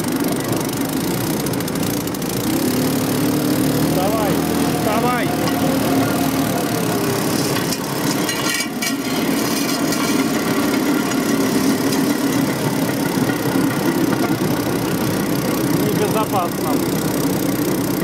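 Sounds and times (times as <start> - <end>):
small engine running: 0.0 - 18.0
wheels clattering on rails: 0.0 - 18.0.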